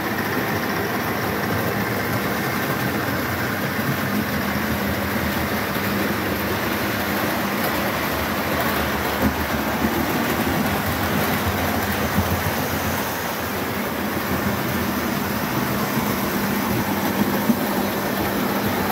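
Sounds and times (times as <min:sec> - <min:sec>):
model train rumbling on track: 0:00.0 - 0:18.9.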